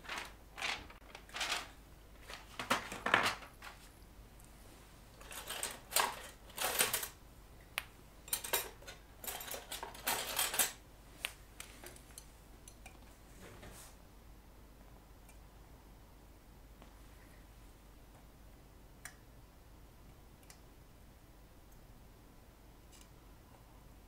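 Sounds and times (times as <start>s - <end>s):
metal tools clinking and rattling: 5.2s - 7.2s, 8.3s - 10.8s.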